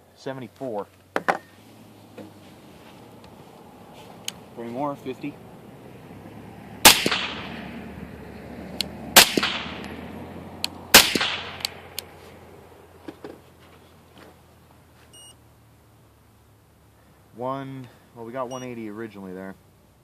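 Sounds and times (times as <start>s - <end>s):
suppressed rifle shots: 6.8s - 7.6s, 9.1s - 9.9s, 10.9s - 12.0s
short electronic beep: 15.1s - 15.4s, 18.5s - 18.7s.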